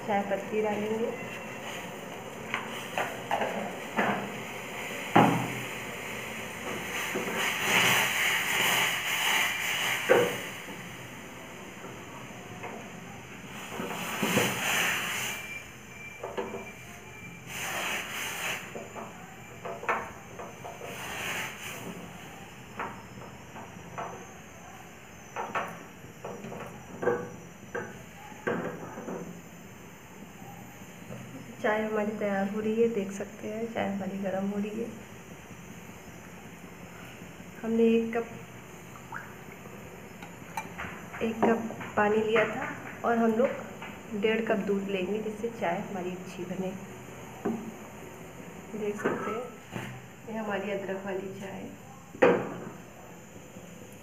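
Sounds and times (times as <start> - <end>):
water boiling and bubbling: 0.0 - 28.2, 34.6 - 50.3
gas flame hiss: 0.0 - 51.3
metal utensils knocking saucepan: 40.2 - 40.9.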